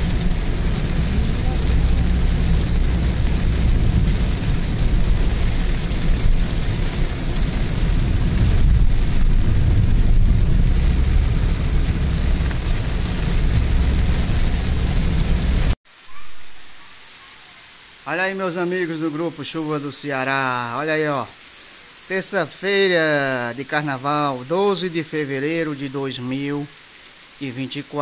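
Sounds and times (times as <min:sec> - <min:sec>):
car tyres rumbling on wet road: 0:00.0 - 0:15.8
rain hissing on windshield: 0:00.0 - 0:28.0.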